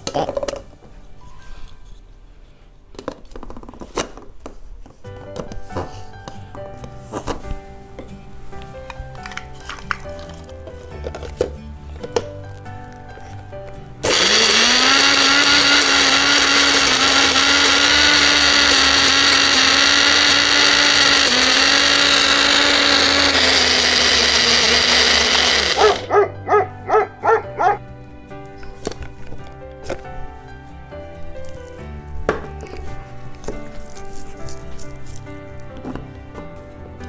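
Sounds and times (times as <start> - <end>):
electric mixer grinder running: 14.0 - 26.2.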